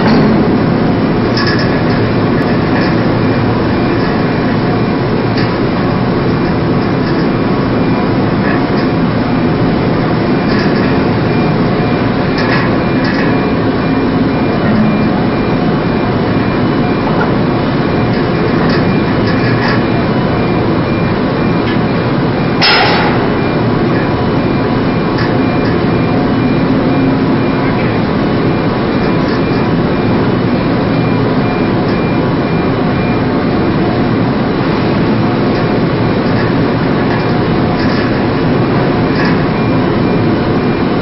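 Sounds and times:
ship engines running: 0.0s - 41.0s
sharp metal clank: 22.6s - 23.6s.

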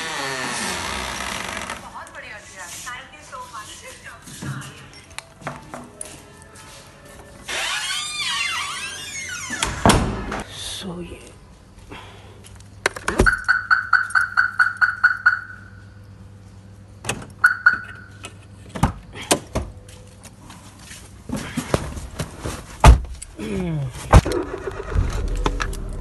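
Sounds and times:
car door thunk: 22.8s - 23.1s
car engine rumbling: 23.3s - 26.0s.

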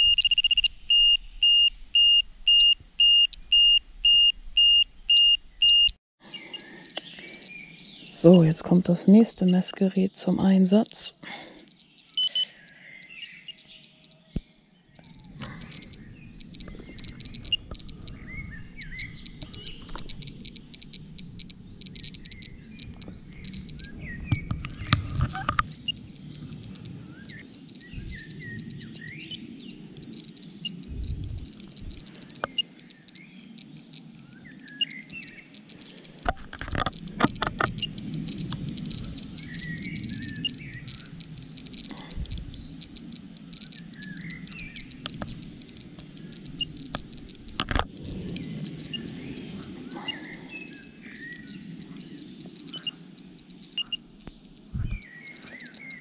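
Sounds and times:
songbirds chirping: 0.0s - 56.0s
low rumble: 15.0s - 55.5s.

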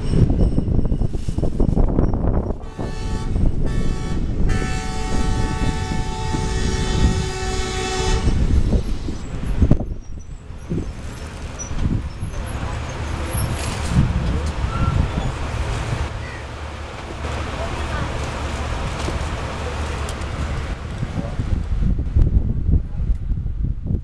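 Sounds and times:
train wheels rumbling on track: 0.0s - 24.0s
train air horn blasts: 2.6s - 8.8s.

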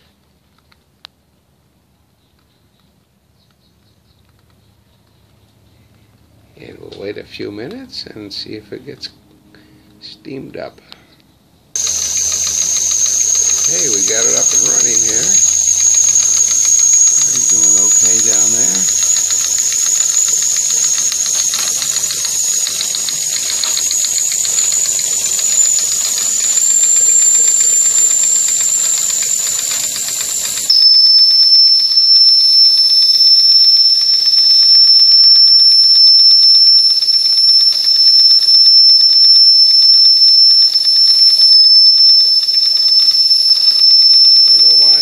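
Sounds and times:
toy steam engine whistling hiss: 11.8s - 45.0s.

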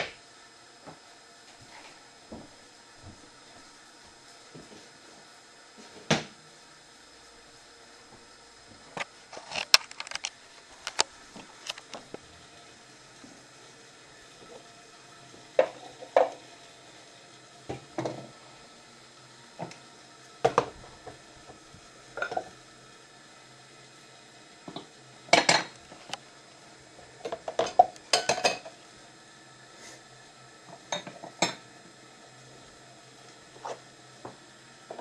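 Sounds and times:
dishes and cutlery clinking: 27.6s - 28.7s.

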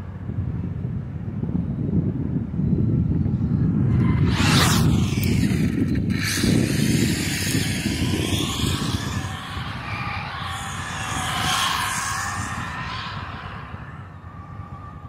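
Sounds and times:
low rumble: 3.3s - 15.0s
rc car motor whine: 3.6s - 15.0s.

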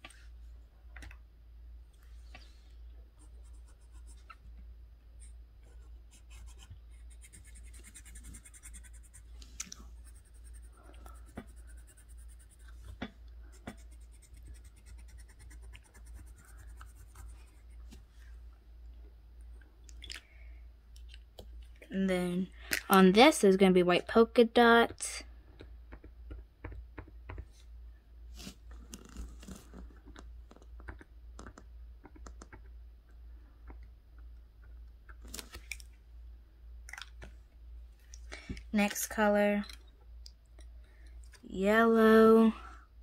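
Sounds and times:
pencil scratching on paper: 3.2s - 4.3s, 5.2s - 18.0s.

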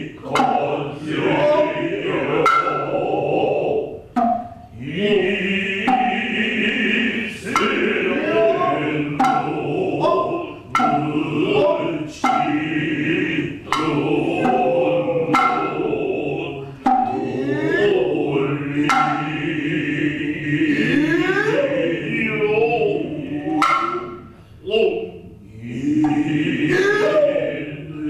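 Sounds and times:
chorus chanting in unison: 0.0s - 28.0s
hand drum strokes: 0.2s - 3.0s, 4.0s - 4.8s, 5.8s - 6.4s, 7.4s - 12.8s, 13.6s - 16.1s, 16.8s - 17.3s, 18.8s - 19.5s, 23.4s - 24.4s.

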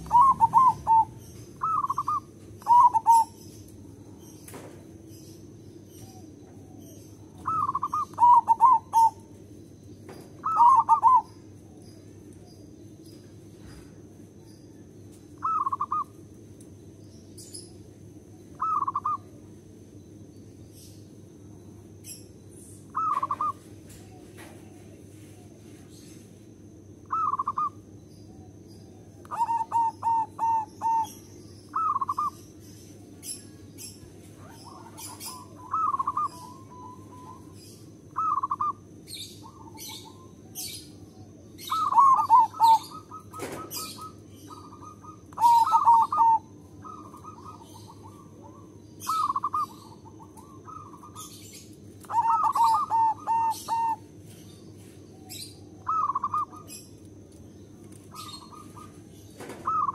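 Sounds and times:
dove cooing: 0.0s - 3.5s, 6.0s - 9.3s, 10.4s - 11.4s, 15.4s - 16.1s, 18.5s - 19.4s, 22.9s - 25.5s, 27.0s - 27.8s, 29.2s - 32.4s, 33.3s - 54.2s, 55.2s - 56.9s, 58.1s - 59.9s
birds chirping: 0.0s - 59.9s.

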